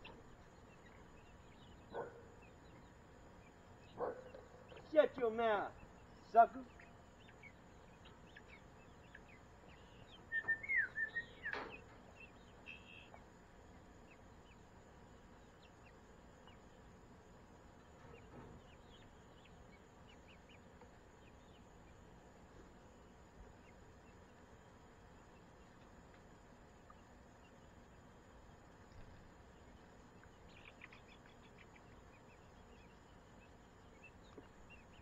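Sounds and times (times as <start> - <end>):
low steady hiss: 0.0 - 35.0
poultry chirping: 0.0 - 35.0
faint peeps: 28.9 - 35.0.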